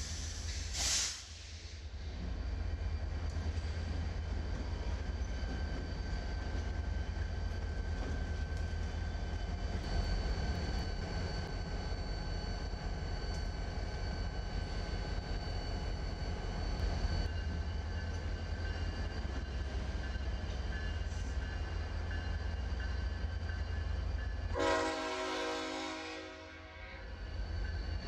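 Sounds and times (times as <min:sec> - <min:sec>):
locomotive engine drone: 0:01.8 - 0:28.0
chord of sustained horn tones: 0:24.6 - 0:27.0.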